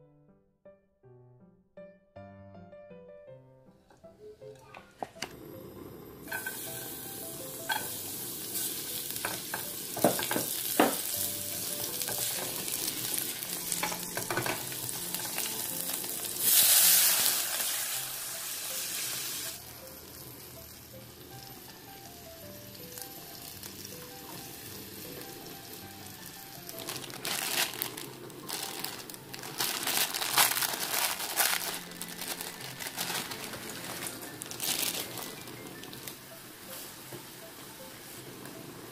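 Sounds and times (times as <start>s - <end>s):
chilies sizzling in hot oil: 5.9s - 38.9s
loud hiss of water on oil: 16.4s - 19.6s.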